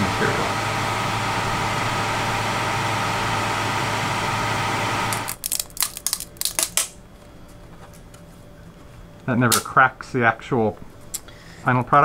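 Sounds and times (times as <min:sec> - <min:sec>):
printer machine hum: 0:00.0 - 0:05.4.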